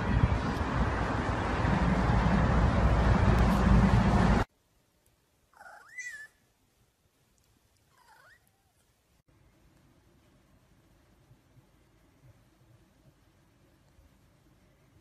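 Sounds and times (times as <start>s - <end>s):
wind on microphone: 0.0s - 4.4s
cat meowing: 5.6s - 6.4s, 7.9s - 8.8s.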